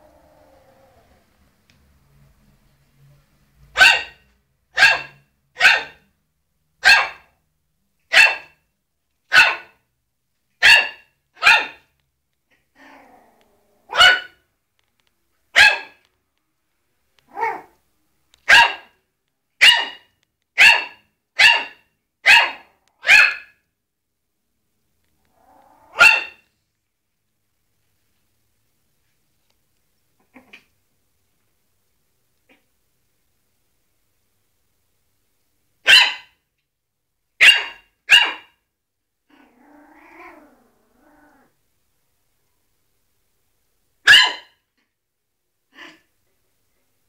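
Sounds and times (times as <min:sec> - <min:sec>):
small dog yapping: 0:09.3 - 0:09.7, 0:10.6 - 0:11.8, 0:12.8 - 0:14.4, 0:17.3 - 0:17.8, 0:19.6 - 0:23.6, 0:25.3 - 0:26.4, 0:37.4 - 0:38.6, 0:44.1 - 0:44.6.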